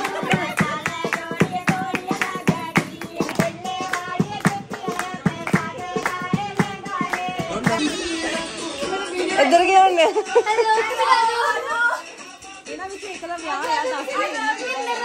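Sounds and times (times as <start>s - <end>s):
women clapping in rhythm: 0.0s - 9.0s, 12.1s - 15.0s
women singing: 0.0s - 15.0s.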